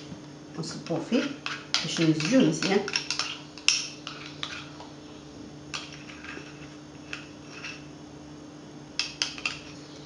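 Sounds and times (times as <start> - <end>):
metal spoon scraping metal cup: 1.1 - 4.7, 5.8 - 7.9.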